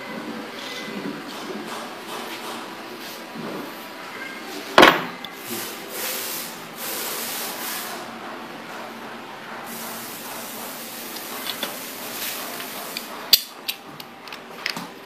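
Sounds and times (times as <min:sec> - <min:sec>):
compressed air hissing: 0:05.4 - 0:08.1.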